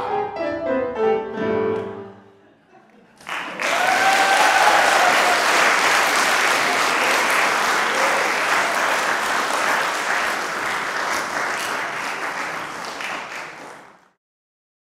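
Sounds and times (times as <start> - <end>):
audience applauding: 3.2 - 14.2.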